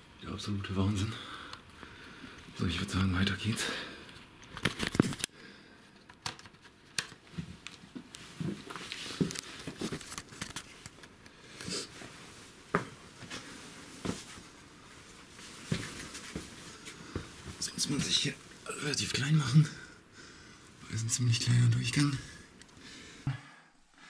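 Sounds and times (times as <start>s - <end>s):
clothing and gear rustling: 11.8s - 18.3s.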